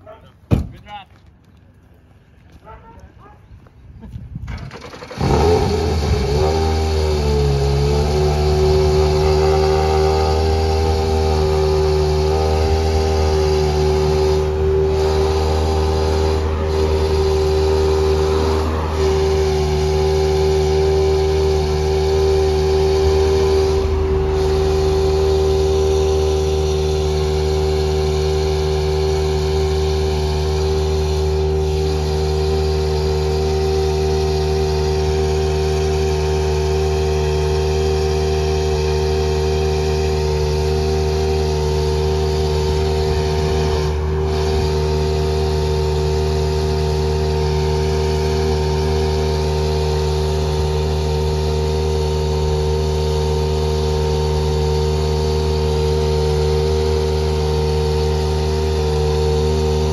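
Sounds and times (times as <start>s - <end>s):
car engine idling fast: 13.2s - 59.9s.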